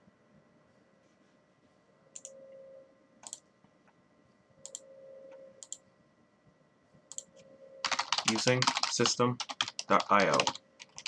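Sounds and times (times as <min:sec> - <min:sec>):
faint hum: 0:00.0 - 0:11.0
computer mouse clicks: 0:02.2 - 0:02.4, 0:03.2 - 0:03.4, 0:04.6 - 0:04.9, 0:05.6 - 0:05.8, 0:07.1 - 0:07.4.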